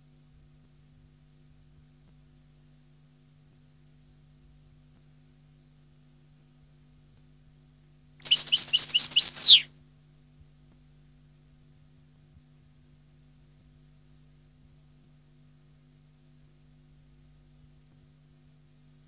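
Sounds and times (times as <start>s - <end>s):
faint low hum: 0.0s - 19.0s
finch singing: 8.2s - 9.6s.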